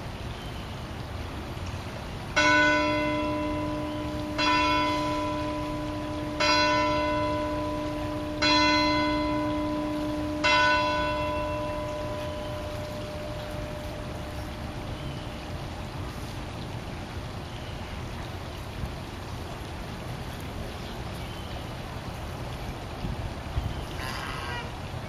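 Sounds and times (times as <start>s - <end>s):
large bell ringing: 2.4s - 15.6s.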